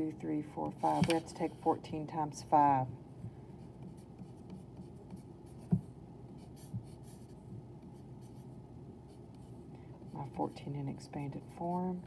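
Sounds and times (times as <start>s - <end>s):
pencil writing on paper: 3.6s - 8.5s.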